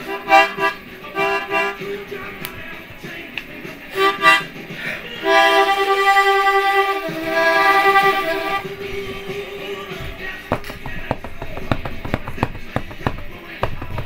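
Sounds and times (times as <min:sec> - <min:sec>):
harmonica playing: 0:00.0 - 0:02.1, 0:03.9 - 0:09.9.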